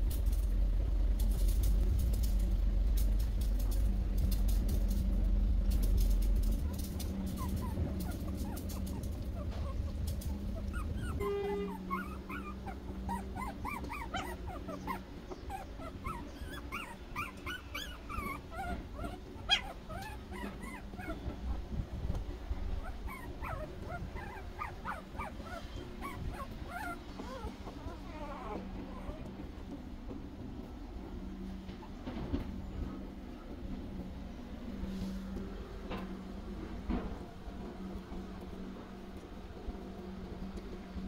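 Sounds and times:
low rumble: 0:00.0 - 0:31.2
puppies squeaking and whimpering: 0:06.2 - 0:21.6, 0:22.6 - 0:29.4.

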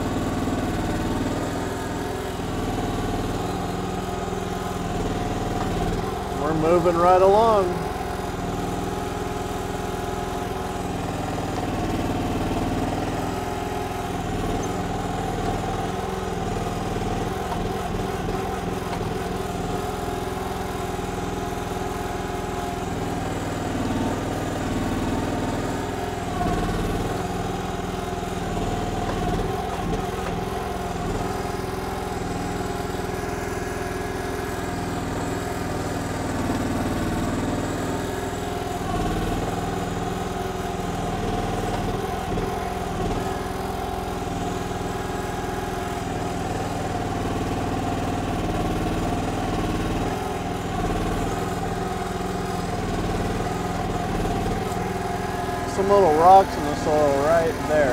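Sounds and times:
excavator engine running: 0:00.0 - 0:57.9
hydraulics working: 0:00.6 - 0:21.9, 0:22.6 - 0:33.5, 0:49.6 - 0:57.9.

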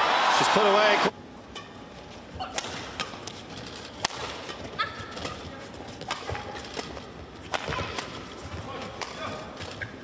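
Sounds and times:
shoes squeaking on court: 0:01.6 - 0:10.0
racket striking shuttlecock: 0:02.4 - 0:03.4, 0:04.0 - 0:05.4, 0:06.0 - 0:09.9.

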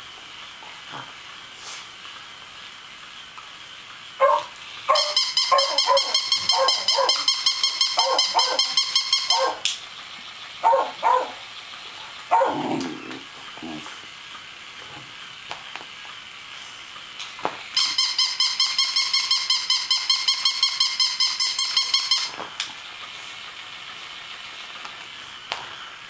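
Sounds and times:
toy dog electronic yapping: 0:04.2 - 0:09.8, 0:10.6 - 0:11.5, 0:12.1 - 0:12.6, 0:17.8 - 0:22.4.

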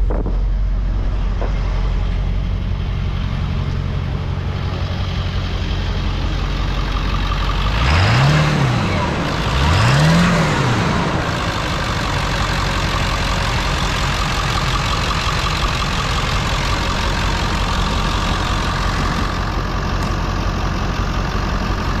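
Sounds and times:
diesel truck engine idling: 0:00.0 - 0:22.0.

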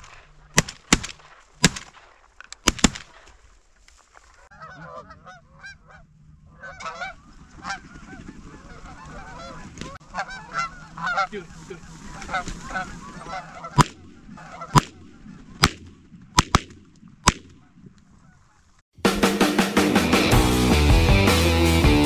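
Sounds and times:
shotgun blasts: 0:02.6 - 0:03.2, 0:13.8 - 0:17.6
geese honking: 0:04.3 - 0:16.0, 0:17.6 - 0:18.8.

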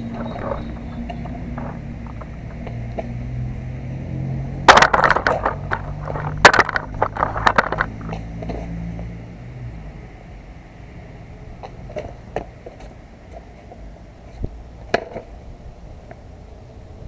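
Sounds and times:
skateboard clacking on ground: 0:00.0 - 0:03.5, 0:04.6 - 0:08.8, 0:11.6 - 0:15.3
skateboard wheels rolling on concrete: 0:00.0 - 0:17.0.

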